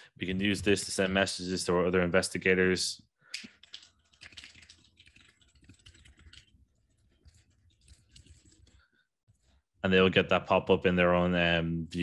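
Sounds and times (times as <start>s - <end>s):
faint typing on keyboard: 3.4s - 8.9s.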